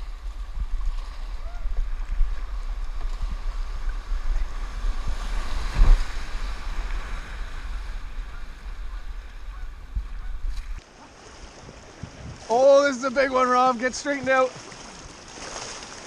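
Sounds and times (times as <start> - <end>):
wind buffeting microphone: 0.0 - 10.8, 11.6 - 12.5
rushing whitewater: 0.0 - 16.0
thump: 5.7 - 6.2.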